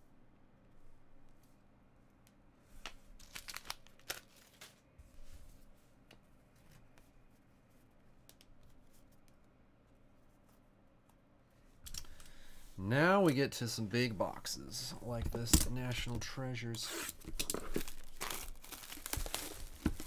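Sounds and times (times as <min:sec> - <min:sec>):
plastic packaging crinkling: 0:03.2 - 0:04.8, 0:17.2 - 0:20.0.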